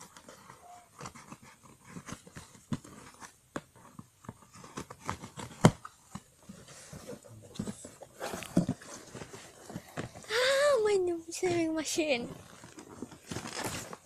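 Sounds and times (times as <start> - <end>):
cardboard box being torn open: 12.4 - 14.0.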